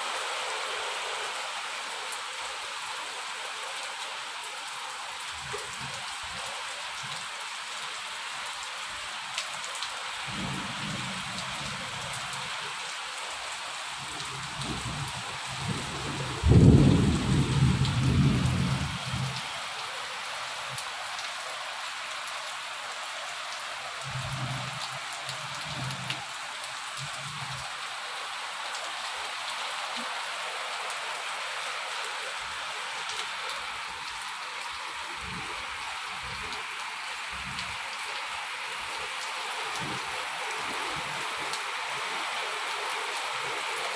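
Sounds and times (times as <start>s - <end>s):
heavy rain on tiles: 0.0s - 43.9s
low thunder rumble: 14.6s - 19.3s.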